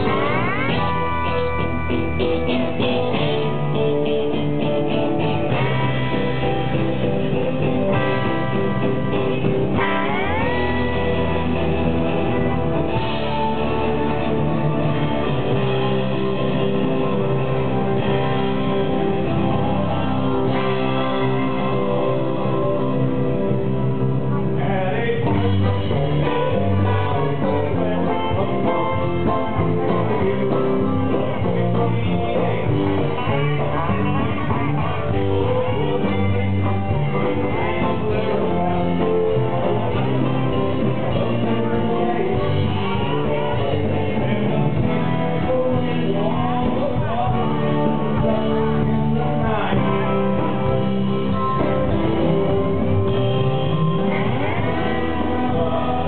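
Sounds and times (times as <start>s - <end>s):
drums: 0.0s - 56.0s
electric guitars: 0.0s - 56.0s
person singing: 0.0s - 56.0s.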